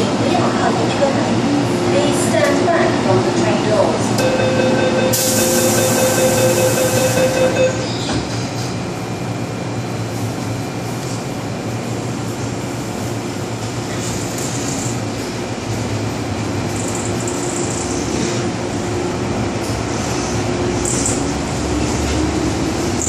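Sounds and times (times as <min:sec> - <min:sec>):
metro car rumble: 0:00.0 - 0:23.0
train doors shutting: 0:04.1 - 0:08.8
door warning tone: 0:04.2 - 0:08.3.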